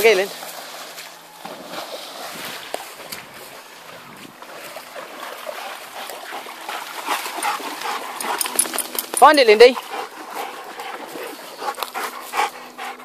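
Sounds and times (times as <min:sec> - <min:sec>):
water splashing in stream: 0:00.0 - 0:12.2.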